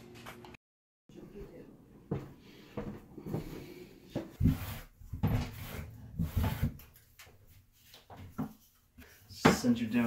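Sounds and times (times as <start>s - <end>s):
grout float scraping tiles: 4.3s - 9.4s.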